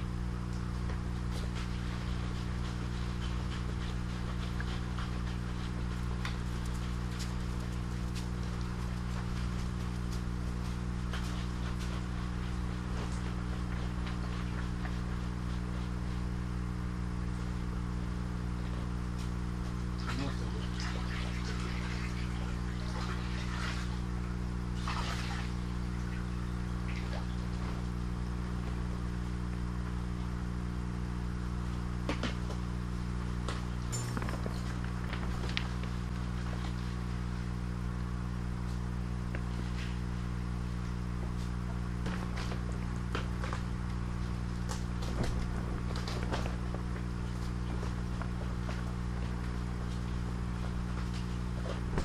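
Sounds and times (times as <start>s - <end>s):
air pump humming: 0.0s - 52.0s.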